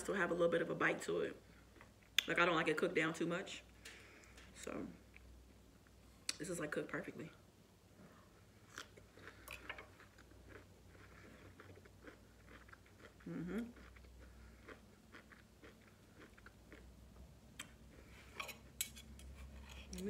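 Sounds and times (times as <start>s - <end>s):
close-up chewing: 8.6s - 17.0s.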